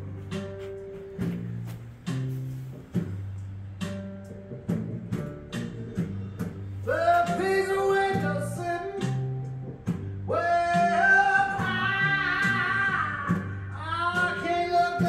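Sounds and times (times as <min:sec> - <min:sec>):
song with singing and guitar: 0:00.0 - 0:15.0.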